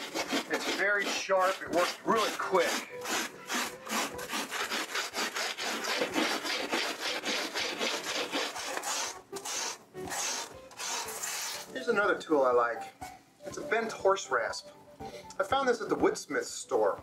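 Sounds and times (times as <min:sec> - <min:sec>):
rasp shaving foam board: 0:00.0 - 0:11.8.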